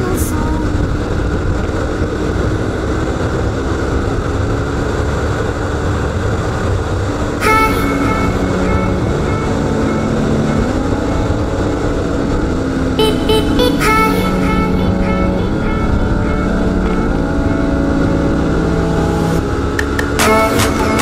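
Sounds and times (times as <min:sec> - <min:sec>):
wind rush on microphone: 0:00.0 - 0:07.6
motorcycle engine cruising: 0:00.4 - 0:20.4
background music: 0:07.4 - 0:21.0.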